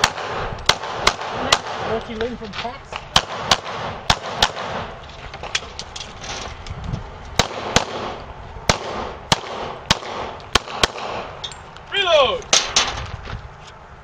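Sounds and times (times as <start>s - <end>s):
pistol shots: 0.0s - 2.0s, 2.9s - 5.0s, 7.4s - 11.4s.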